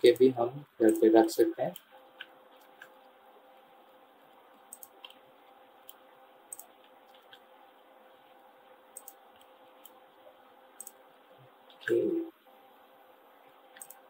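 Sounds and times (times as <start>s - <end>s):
faint steady hum: 0.0s - 14.0s
mouse and keyboard clicks: 4.7s - 5.2s, 5.8s - 7.4s, 9.0s - 10.0s, 13.7s - 14.0s.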